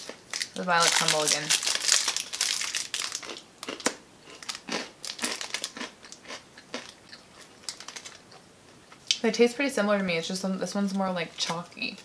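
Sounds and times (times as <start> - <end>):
wrappers crinkling: 0.0 - 6.3, 7.4 - 8.2
chocolate bars crunching: 0.0 - 8.4.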